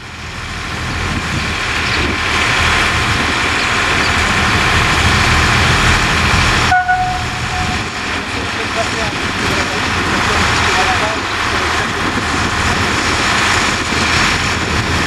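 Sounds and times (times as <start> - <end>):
diesel locomotive engine rumbling: 0.0 - 15.0
high steady tone: 6.7 - 8.2.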